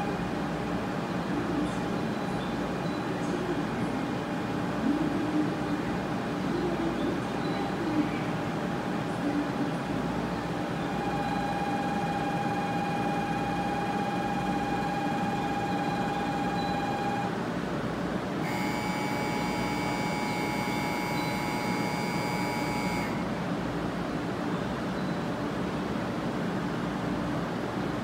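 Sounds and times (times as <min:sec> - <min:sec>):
stationary train humming: 0:00.0 - 0:28.0
electronic signal tones: 0:10.8 - 0:17.3, 0:18.4 - 0:23.3.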